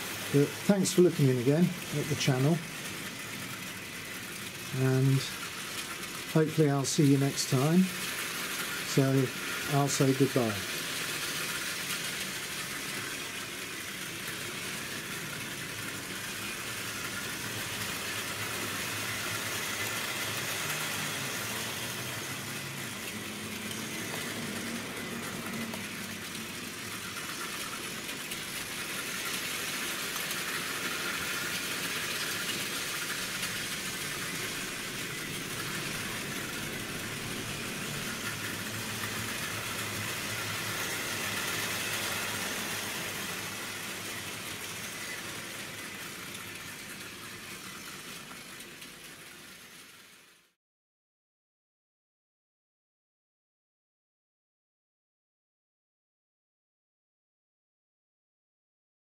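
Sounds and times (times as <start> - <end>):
wheel and track rattle: 0.0 - 50.5
model train motor whirring: 0.0 - 50.6.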